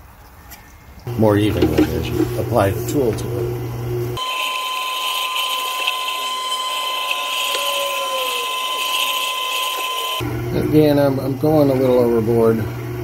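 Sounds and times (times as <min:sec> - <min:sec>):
sharpening machine whine: 0:04.1 - 0:10.3.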